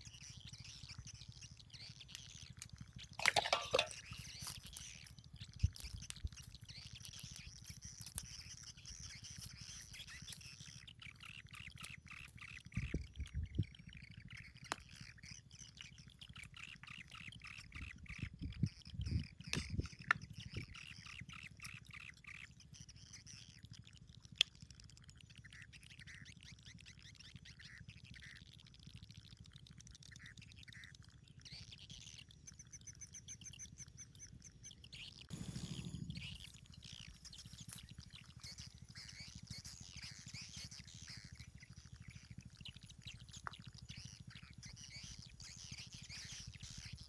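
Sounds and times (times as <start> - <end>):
birds chirping: 0.1 - 4.9, 31.4 - 47.0.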